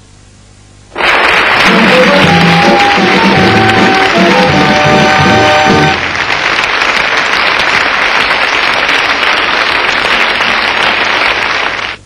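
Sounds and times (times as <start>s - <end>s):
audience applauding: 0.9s - 12.0s.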